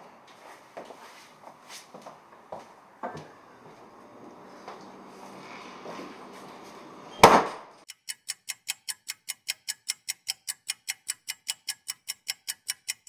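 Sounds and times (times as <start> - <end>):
loud bang: 7.2 - 7.8
clock ticking fast: 7.8 - 13.0.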